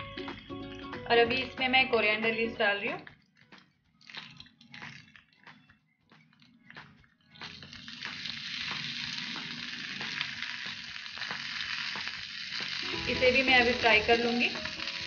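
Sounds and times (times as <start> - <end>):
leaves sizzling in hot oil: 7.4 - 15.0.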